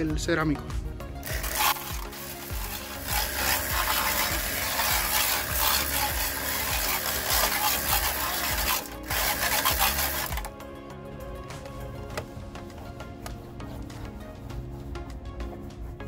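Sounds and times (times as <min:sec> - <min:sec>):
scrubbing on a plastic hubcap: 0:01.2 - 0:10.5.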